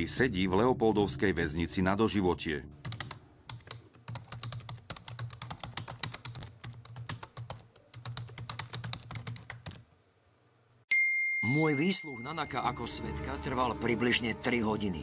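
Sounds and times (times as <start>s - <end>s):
keyboard typing clicks: 2.8s - 9.8s.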